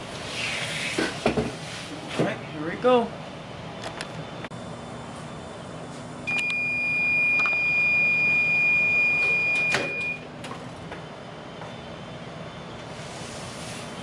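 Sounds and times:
long high beep: 6.3s - 10.3s.

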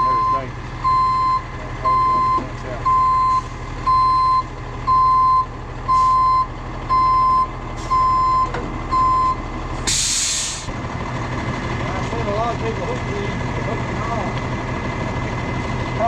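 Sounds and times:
truck backup alarm beeping: 0.0s - 10.7s
truck engine running: 0.0s - 16.0s.

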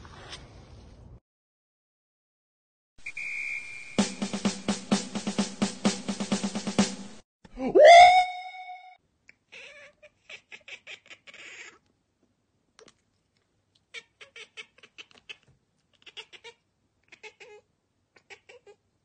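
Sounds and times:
cat chattering: 9.3s - 11.8s, 13.8s - 18.8s.

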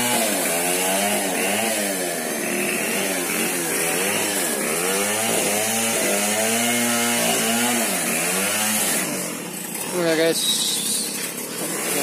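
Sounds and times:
chainsaw engine under load: 0.0s - 12.0s.

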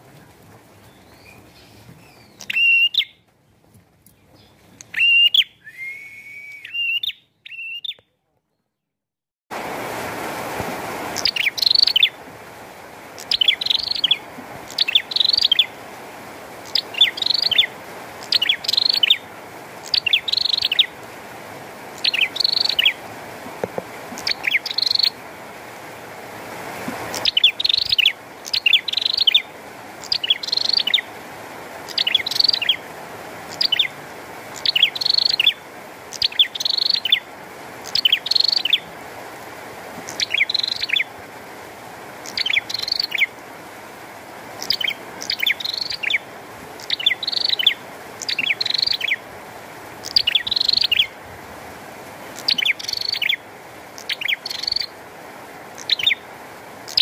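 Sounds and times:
rain hissing: 0.0s - 3.1s, 9.5s - 57.0s
bird chirping: 0.8s - 3.2s, 4.0s - 8.7s, 11.2s - 12.2s, 13.2s - 15.7s, 16.6s - 19.2s, 19.8s - 20.9s, 22.0s - 23.0s, 24.2s - 25.2s, 27.1s - 31.1s, 31.9s - 32.8s, 33.5s - 33.9s, 34.5s - 37.2s, 37.8s - 38.8s, 40.1s - 41.1s, 42.2s - 43.3s, 44.6s - 46.2s, 46.8s - 49.2s, 50.0s - 51.1s, 52.4s - 53.4s, 54.0s - 54.9s, 55.8s - 56.2s.

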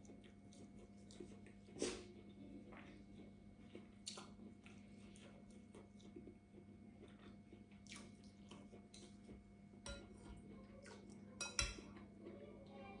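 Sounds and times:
chewing and mouth clicks: 0.0s - 9.4s
metal spoon clinking glass bowl: 9.9s - 10.2s, 11.4s - 11.9s.

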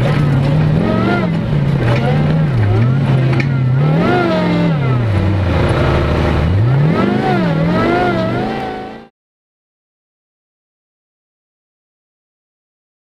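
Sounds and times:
buggy engine revving: 0.0s - 9.1s.

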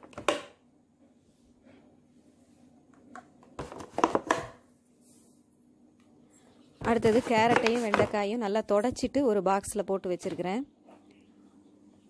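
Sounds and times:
faint low hum: 4.6s - 12.0s.

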